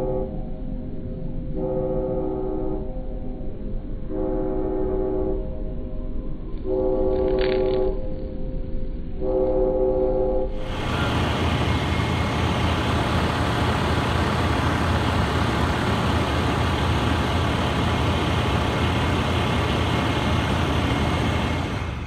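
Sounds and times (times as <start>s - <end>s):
truck engine idling: 10.6s - 22.0s.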